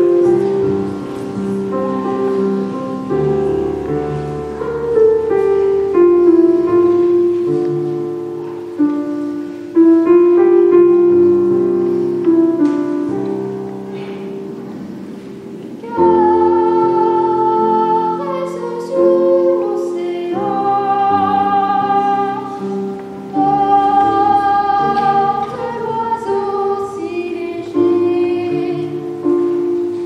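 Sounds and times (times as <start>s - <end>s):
digital piano accompaniment: 0.0s - 30.0s
boy singing long notes: 15.8s - 29.9s.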